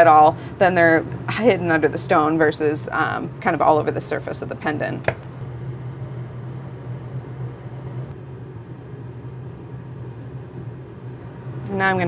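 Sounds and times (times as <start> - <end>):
low hum: 5.3 - 12.0.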